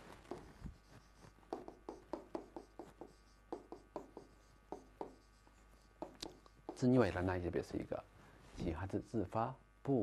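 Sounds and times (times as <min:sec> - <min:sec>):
stylus tapping on a screen: 0:01.5 - 0:05.3, 0:06.0 - 0:06.9.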